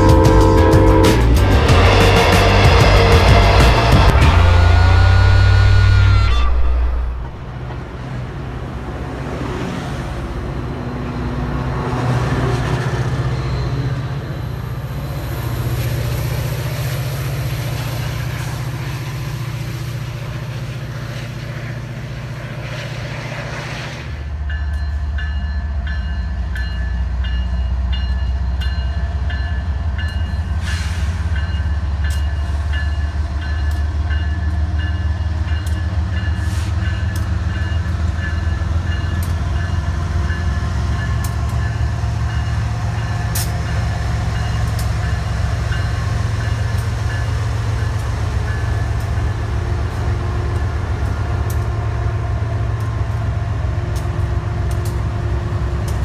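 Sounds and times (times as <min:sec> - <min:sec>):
diesel locomotive engine drone: 0:00.0 - 0:56.0
freight train rumbling past: 0:00.0 - 0:56.0
train wheel clicks: 0:35.5 - 0:51.8, 0:52.7 - 0:56.0.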